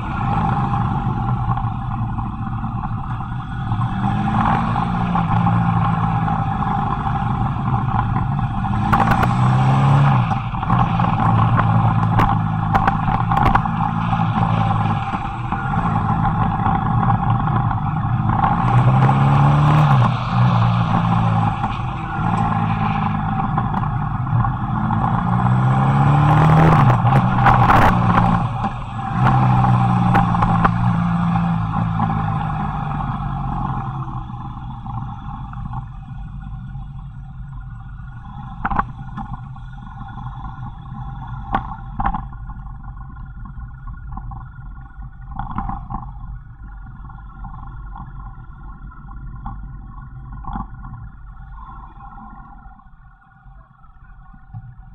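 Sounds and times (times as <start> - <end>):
motorcycle engine revving: 0.0 - 42.3
wind and road noise: 0.0 - 54.9.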